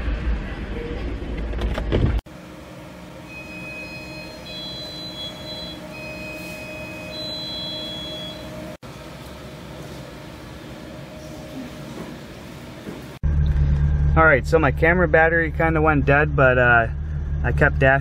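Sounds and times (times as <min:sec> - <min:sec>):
refrigeration hum: 0:00.0 - 0:18.0
faint high whining tones: 0:03.1 - 0:08.8.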